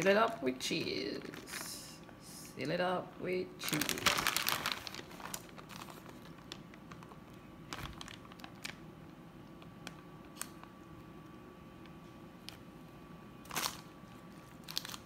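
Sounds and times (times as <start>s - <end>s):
cheese and paper rustling: 0.0s - 2.4s, 3.6s - 10.7s, 13.4s - 15.0s.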